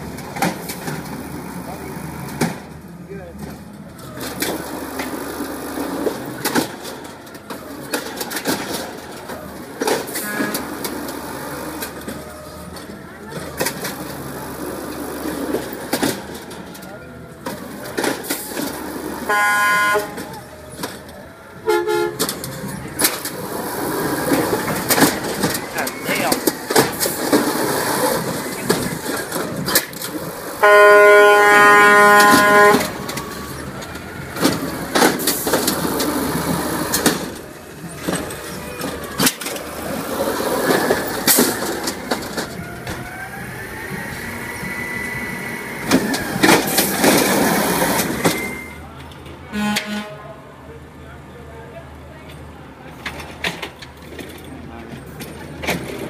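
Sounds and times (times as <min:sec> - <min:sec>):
diesel engine under hydraulic load: 0:00.0 - 0:56.0
truck horn tooting: 0:10.1 - 0:10.9, 0:19.2 - 0:20.5, 0:21.6 - 0:22.5, 0:30.6 - 0:33.2, 0:49.5 - 0:50.4
hydraulic whine: 0:13.9 - 0:48.8.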